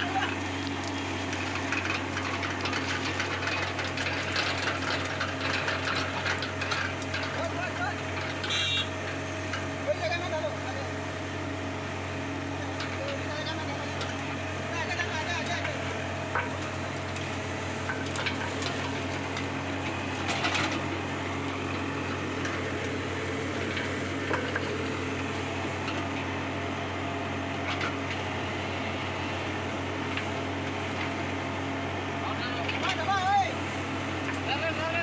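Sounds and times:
excavator diesel engine humming: 0.0 - 35.0.

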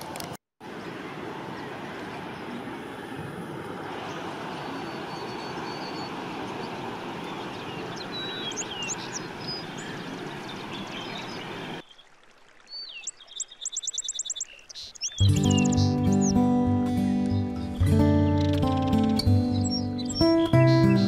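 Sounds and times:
high bird chirps: 4.6 - 12.1, 12.7 - 16.4, 17.3 - 21.0.

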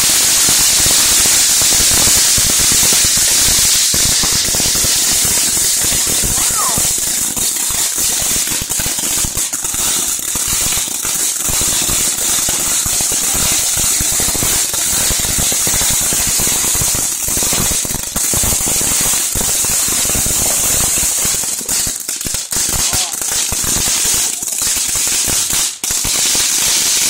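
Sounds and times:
fireworks hissing: 0.0 - 27.0
rapid crackling pops: 3.0 - 13.6, 19.4 - 26.6.

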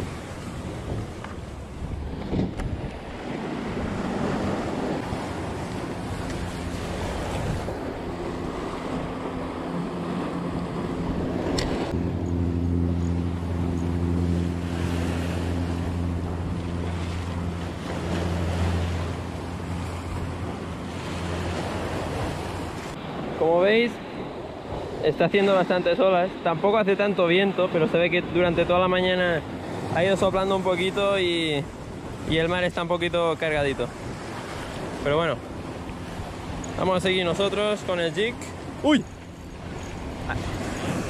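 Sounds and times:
surf breaking on rocky shore: 0.0 - 12.0, 14.6 - 41.0
steady low hum: 0.0 - 23.1
wind buffeting microphone: 0.0 - 23.4.

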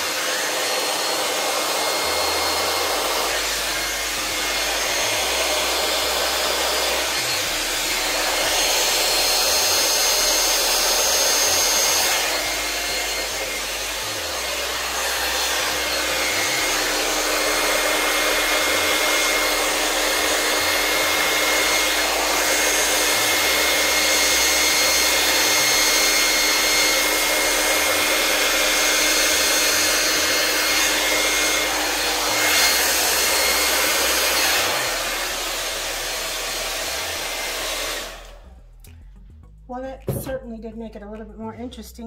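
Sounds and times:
hot-air blower whining: 0.0 - 38.5.

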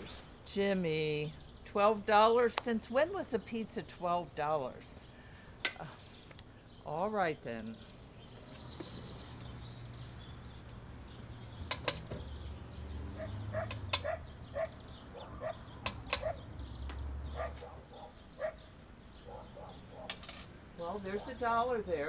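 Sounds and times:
coins clinking: 8.4 - 11.6, 20.1 - 20.5.

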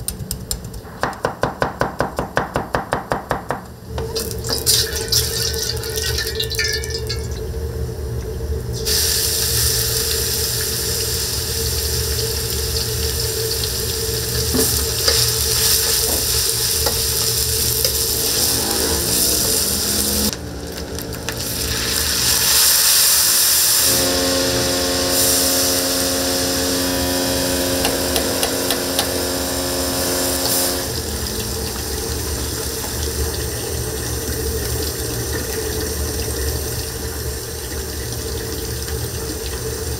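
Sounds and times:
gas burner roaring: 0.0 - 39.9
food sizzling in a wok: 4.2 - 7.7, 8.8 - 35.2
humming tone: 17.6 - 21.4, 23.9 - 32.6.

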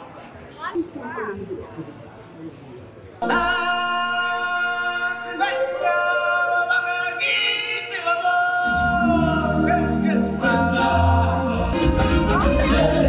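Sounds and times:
singers holding long notes: 3.2 - 13.0
deep instrumental accompaniment: 8.7 - 13.0.

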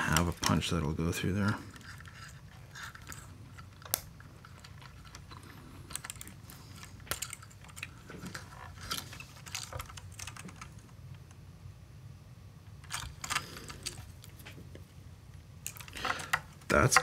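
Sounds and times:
metal parts clicking and tapping: 1.4 - 10.8, 15.6 - 17.0.

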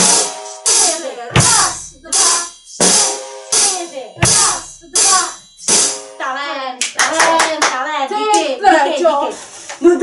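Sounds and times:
hi-hat strikes: 0.0 - 6.2
person speaking: 0.8 - 2.9, 3.7 - 5.4
kick drum: 1.3 - 3.1, 4.2 - 6.0.

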